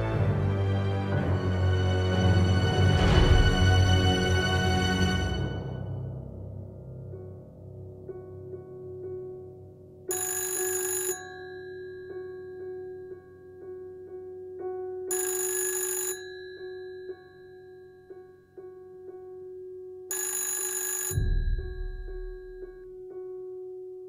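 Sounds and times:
soft music: 0.0s - 24.0s
bell-like electric ring: 10.1s - 13.2s, 15.1s - 18.2s.

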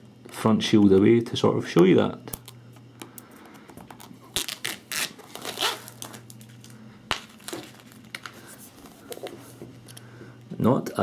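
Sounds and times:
plastic film peeling and crackling: 3.9s - 9.4s.

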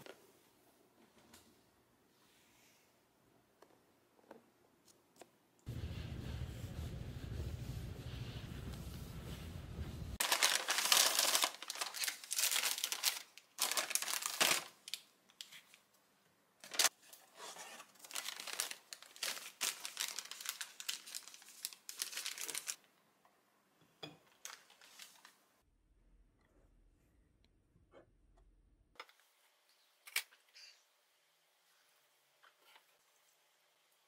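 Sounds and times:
low rumble: 5.7s - 10.2s
paper wrapping crinkling: 10.2s - 15.8s, 16.6s - 22.9s, 24.4s - 25.4s.

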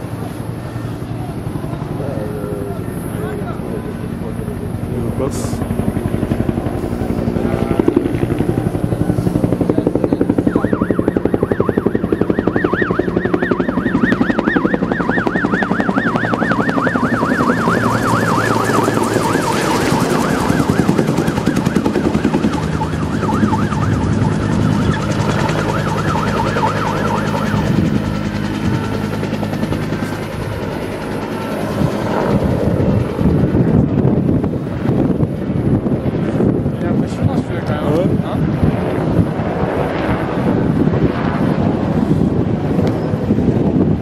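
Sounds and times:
helicopter rotor blades beating: 0.0s - 44.0s
siren warbling: 5.2s - 33.2s.

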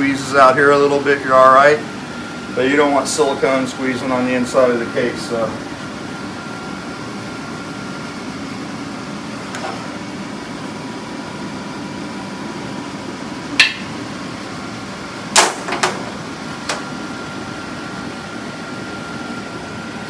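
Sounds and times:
air conditioning hum: 0.0s - 20.0s.

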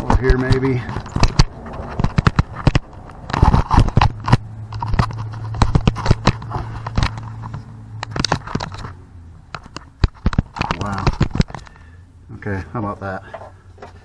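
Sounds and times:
handling bumps: 0.0s - 11.8s.

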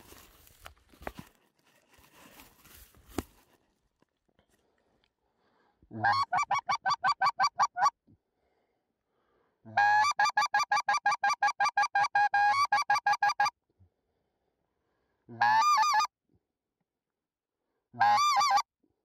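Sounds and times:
goose call honks: 5.9s - 7.9s, 9.7s - 13.5s, 15.3s - 16.1s, 18.0s - 18.6s.

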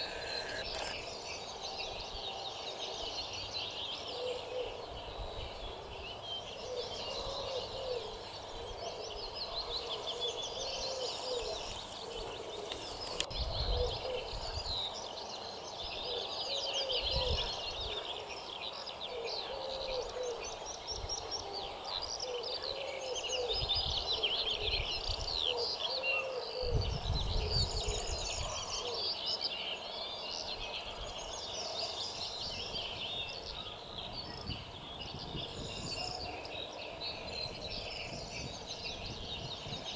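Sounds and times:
low humped bird call: 0.0s - 3.2s, 6.5s - 14.7s
songbirds singing and twittering: 0.0s - 39.9s.

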